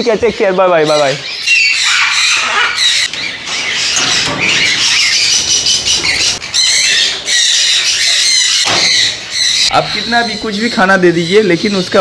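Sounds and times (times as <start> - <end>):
parrots squawking and chattering: 0.3 - 12.0.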